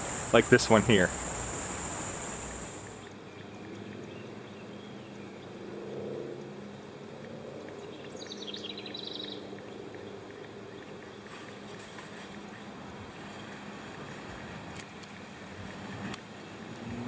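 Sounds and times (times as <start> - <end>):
distant traffic hum: 0.0 - 3.0.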